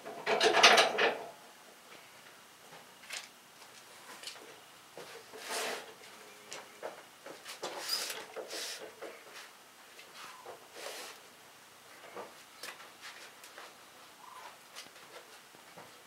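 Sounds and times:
hand brushing sawdust: 7.8s - 8.9s.

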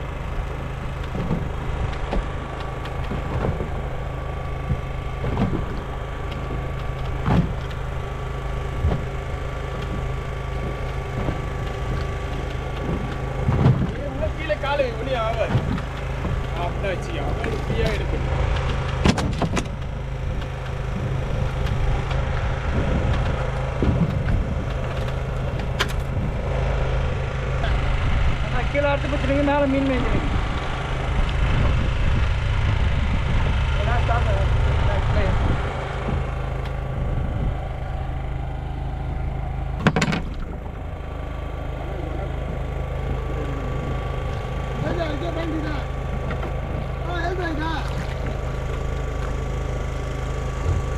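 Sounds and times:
boat engine idling: 0.0s - 50.9s
sharp knocks: 4.7s - 7.8s, 39.8s - 40.7s.

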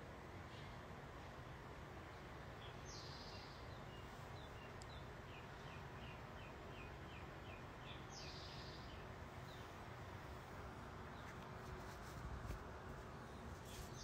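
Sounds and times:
low background hiss: 0.0s - 14.0s
bird chirping: 2.1s - 9.8s.

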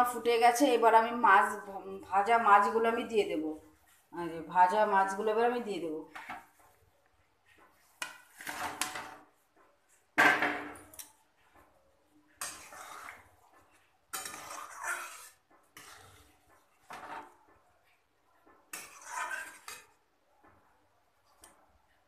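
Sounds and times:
metal spatula scraping steel pan: 7.8s - 9.4s, 12.3s - 17.5s, 18.7s - 20.0s.

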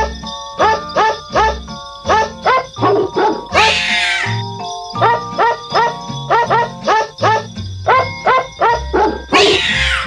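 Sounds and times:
dog bark notes in music: 0.0s - 10.0s.

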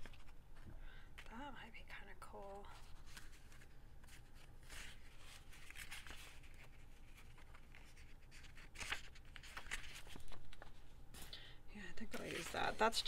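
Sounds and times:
paper rustling and sliding: 2.8s - 10.9s, 12.1s - 13.0s.

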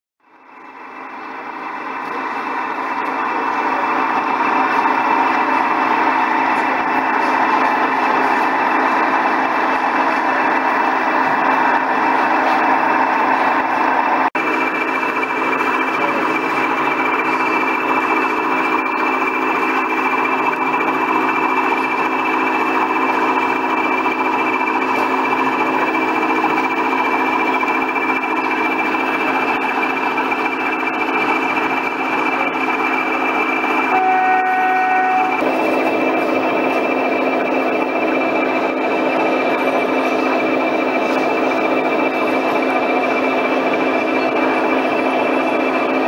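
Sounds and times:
model locomotive engine drone: 0.2s - 46.0s
hall noise: 0.4s - 46.0s
horn blast: 33.9s - 35.4s.

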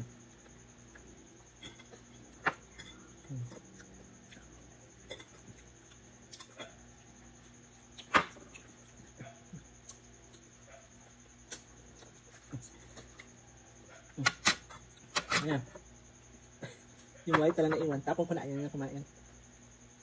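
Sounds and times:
faint high whine: 0.0s - 20.0s.

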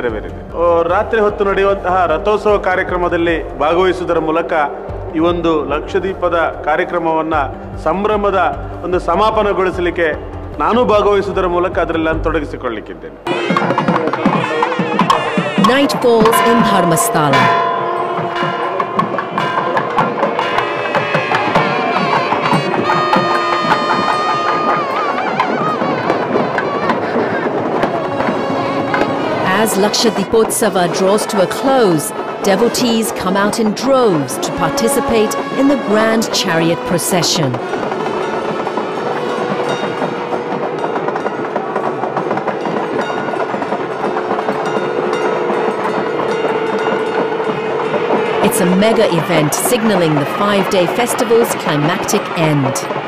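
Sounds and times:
held melody line: 13.2s - 40.5s, 48.4s - 53.0s
rapid clattering drums: 13.2s - 53.0s
dense crowd: 47.6s - 53.0s.

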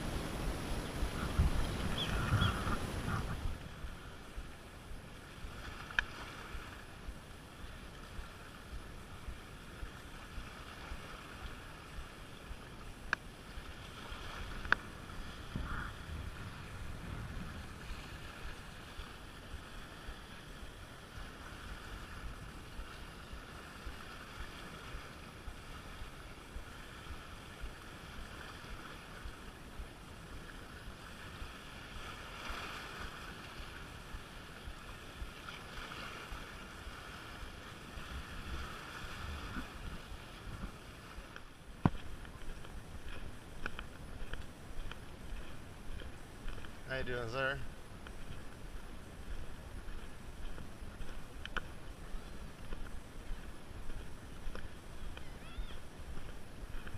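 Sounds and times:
small waves splashing against rocks: 5.2s - 7.0s, 9.4s - 47.6s.

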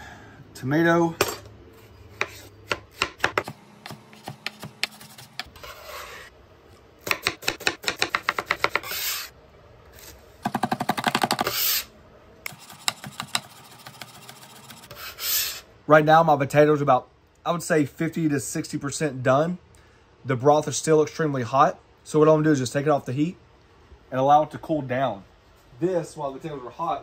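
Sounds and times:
knife chopping on cutting board: 2.2s - 5.5s, 7.0s - 9.0s, 12.6s - 14.2s.

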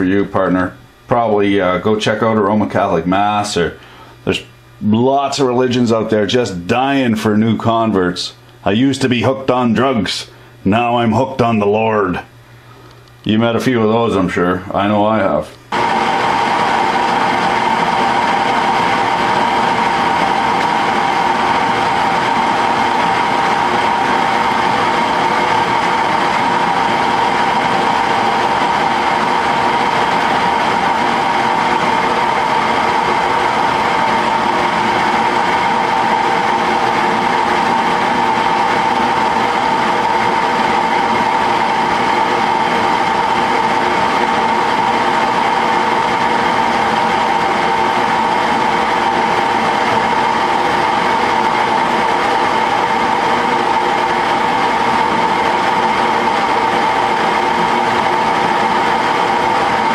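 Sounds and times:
metal lathe whining: 15.7s - 59.9s.

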